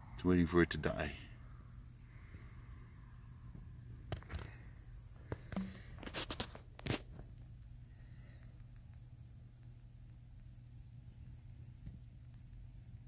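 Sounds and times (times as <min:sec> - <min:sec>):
insect chirping: 0:00.0 - 0:13.0
sharp clicks and knocks: 0:05.4 - 0:07.0.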